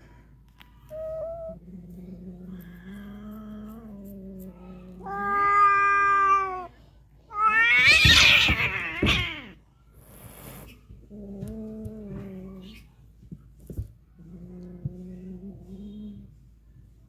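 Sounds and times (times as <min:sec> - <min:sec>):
cat growling: 0:00.9 - 0:06.7, 0:10.4 - 0:12.9, 0:14.2 - 0:16.2
cat yowling: 0:04.9 - 0:06.7, 0:07.3 - 0:09.6
cat screeching: 0:05.0 - 0:06.7, 0:07.3 - 0:09.6
cat hissing: 0:07.3 - 0:10.8.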